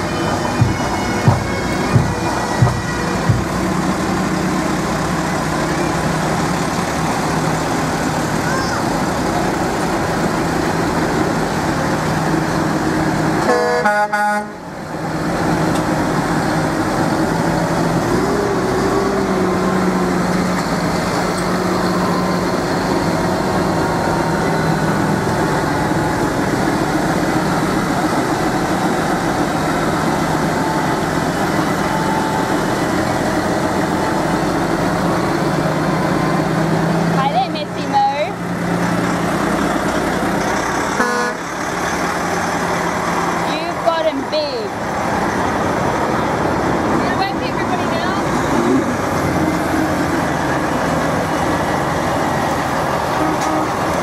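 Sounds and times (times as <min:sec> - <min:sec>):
road vehicle noise: 0:00.0 - 0:54.0
short horn toot: 0:41.0 - 0:41.4.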